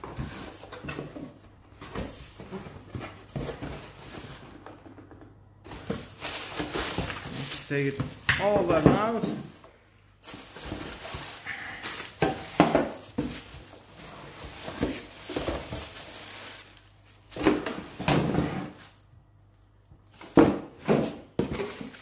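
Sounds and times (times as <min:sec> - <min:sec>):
knocks and bumps of handling: 0:00.0 - 0:07.4, 0:08.0 - 0:13.8
plastic wrapping crinkling: 0:05.7 - 0:18.0, 0:21.4 - 0:22.0.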